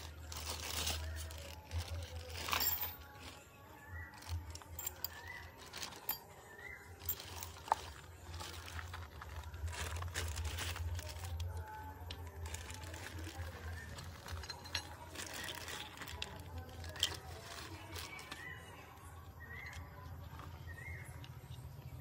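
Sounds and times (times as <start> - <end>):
plastic bags rustling: 0.0 - 19.7
hard plastic parts clicking: 4.2 - 6.2.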